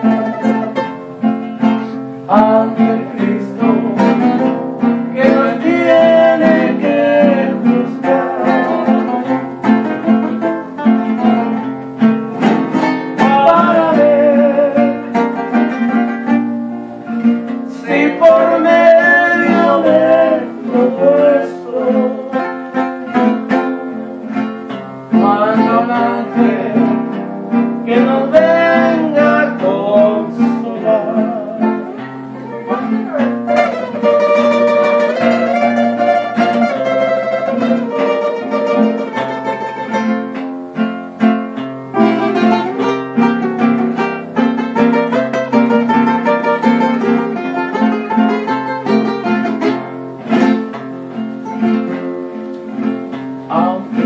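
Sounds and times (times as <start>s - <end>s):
person singing: 0.0s - 10.8s, 12.4s - 16.1s, 17.5s - 24.5s, 25.1s - 27.2s, 27.8s - 40.2s, 53.4s - 54.0s
classical guitar strummed: 0.0s - 54.0s.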